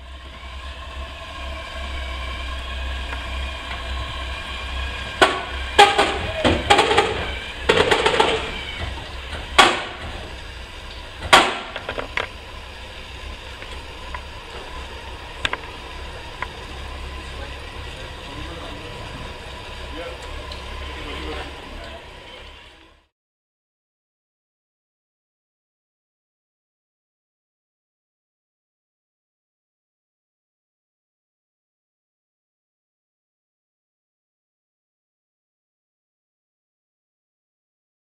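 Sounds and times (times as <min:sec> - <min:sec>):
sharp bangs: 0:05.1 - 0:10.4, 0:11.2 - 0:12.2
motorcycle knocks and clunks: 0:05.2 - 0:10.4, 0:11.0 - 0:12.4.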